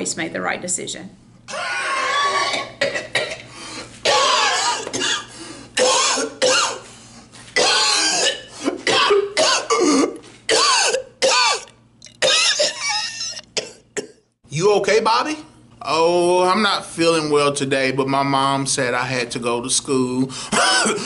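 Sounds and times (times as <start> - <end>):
man coughing: 2.5 - 6.8, 7.6 - 14.3, 20.5 - 21.0
throat clearing: 20.5 - 21.0.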